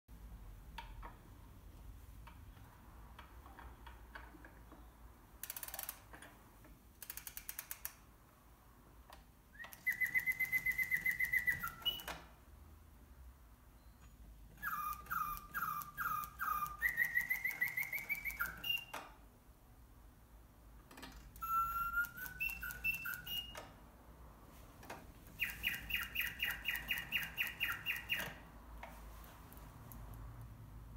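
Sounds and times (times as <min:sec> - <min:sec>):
soft clicks: 0:09.0 - 0:12.3, 0:20.8 - 0:23.8, 0:24.8 - 0:30.8
mechanical birdsong whistle: 0:09.5 - 0:12.3, 0:13.8 - 0:19.2, 0:21.3 - 0:23.8, 0:25.3 - 0:28.5.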